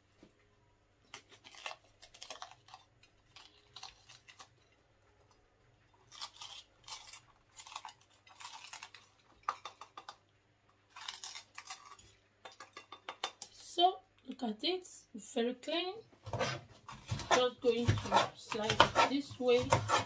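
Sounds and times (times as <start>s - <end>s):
knife slicing crisp pepper: 16.3s - 20.0s.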